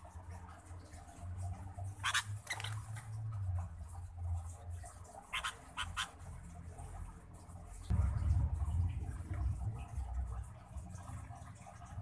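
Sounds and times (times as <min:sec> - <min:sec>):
low steady rumble: 0:02.7 - 0:12.0.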